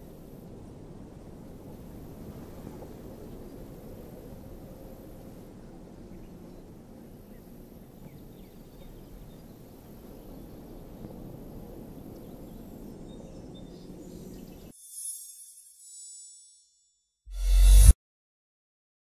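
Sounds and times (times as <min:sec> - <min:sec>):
low outdoor background noise: 0:00.0 - 0:14.7.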